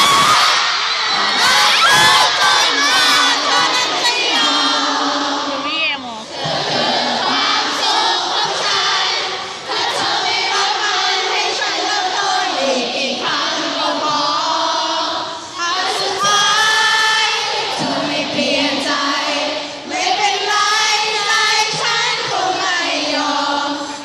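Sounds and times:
audience singing along: 0.0s - 24.0s.

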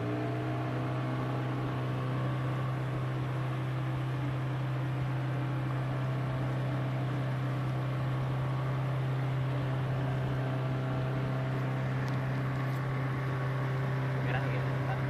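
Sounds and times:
boat engine humming: 0.0s - 15.0s
wind: 0.0s - 15.0s.

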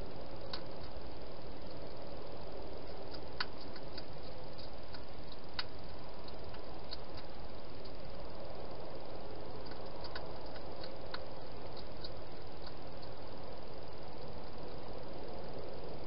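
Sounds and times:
steady hiss: 0.0s - 16.0s
hedgehog chewing clicks: 0.5s - 1.0s, 2.8s - 8.0s, 9.6s - 13.2s.

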